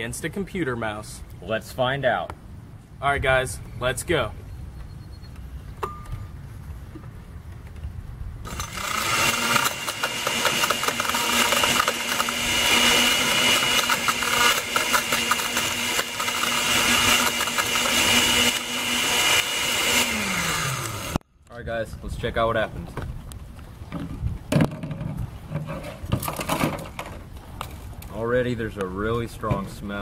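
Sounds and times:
blender motor running: 8.5 - 21.2.

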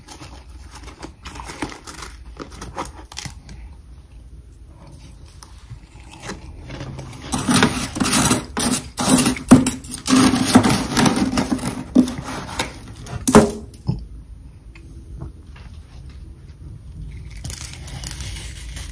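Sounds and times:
metal spoon scraping frost: 6.0 - 13.4.

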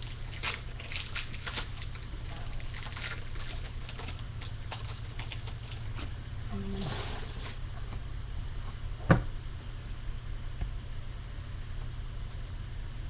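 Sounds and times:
wrapper tearing and crinkling: 0.0 - 6.2
steady low hum: 0.0 - 13.0.

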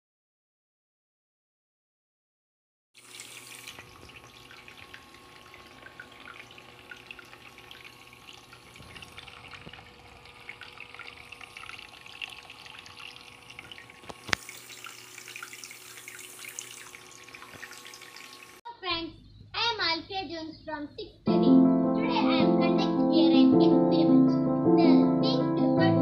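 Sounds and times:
water drips: 3.0 - 18.6
water trickling and splashing: 3.0 - 18.6.

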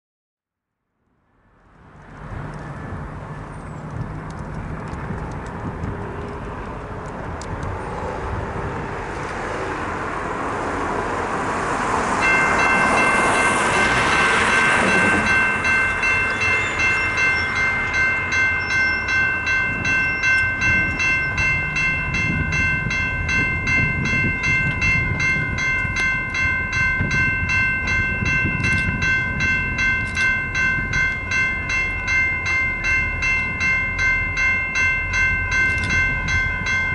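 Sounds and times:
railroad crossing warning bell: 11.2 - 36.9.

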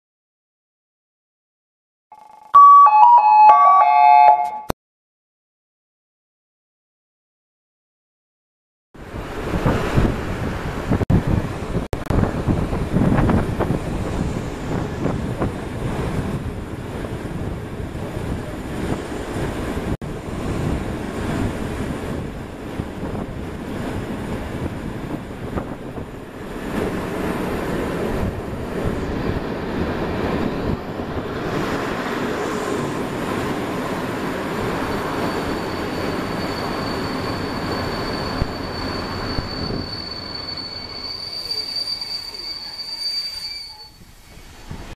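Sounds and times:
train wheels rumbling and rattling: 9.1 - 44.9
high brake squeal: 34.9 - 44.7.

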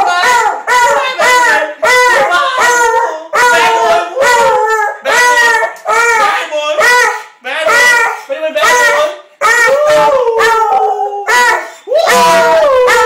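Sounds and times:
dog crying and howling: 0.0 - 13.0.

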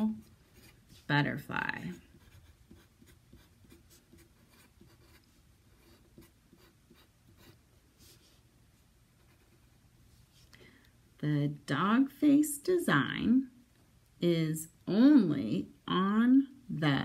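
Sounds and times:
pencil scratching on paper: 0.0 - 8.3, 9.2 - 9.8.

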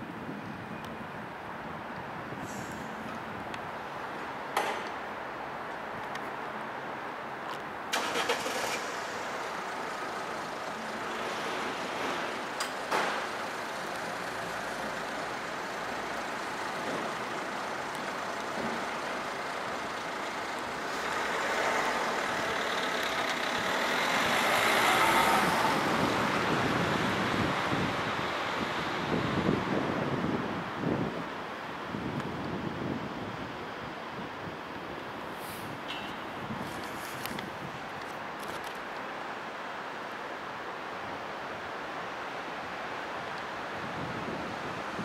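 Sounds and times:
road noise hiss: 0.0 - 45.0
motor vehicle running close by: 20.8 - 27.5.

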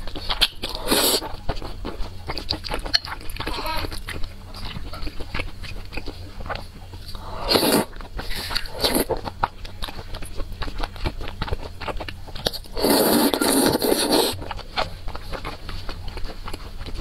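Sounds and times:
person chewing noodles: 0.0 - 17.0
slurping noodles: 0.7 - 1.3, 7.1 - 9.2, 12.7 - 14.4.

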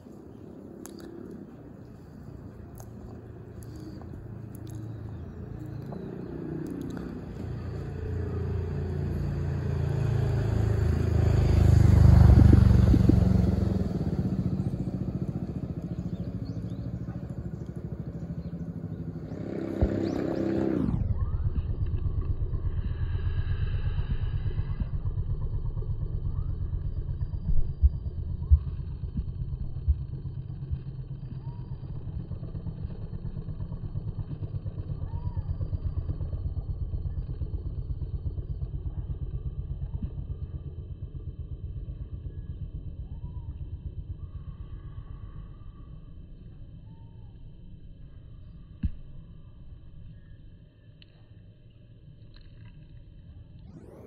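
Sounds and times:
road traffic rumble: 0.0 - 54.0
vehicle passing loudly: 2.0 - 25.6.

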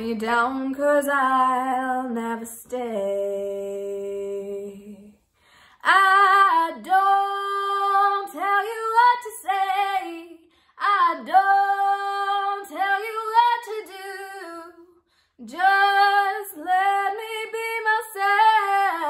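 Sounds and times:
woman singing unaccompanied: 0.0 - 5.2, 5.8 - 19.0.

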